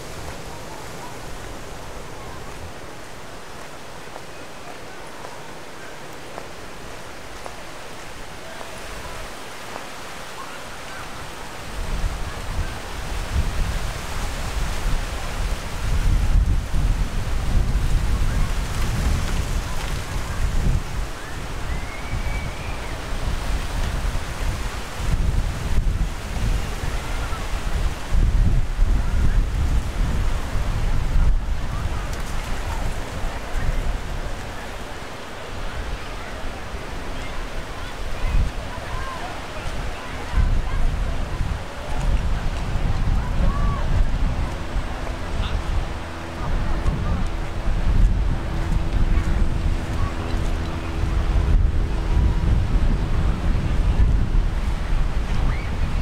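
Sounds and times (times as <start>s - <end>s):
wind and surf hiss: 0.0s - 56.0s
wind buffeting microphone: 11.2s - 56.0s.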